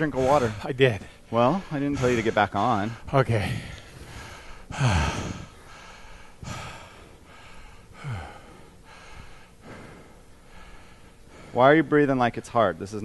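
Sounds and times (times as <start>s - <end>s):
man breathing hard: 0.0s - 11.9s.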